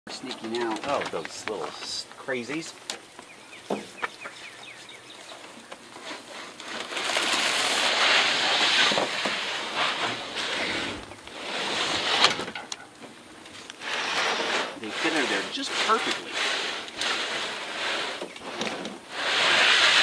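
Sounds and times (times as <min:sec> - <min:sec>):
plastic boxes scraping on plastic: 0:05.3 - 0:12.7, 0:13.8 - 0:20.0.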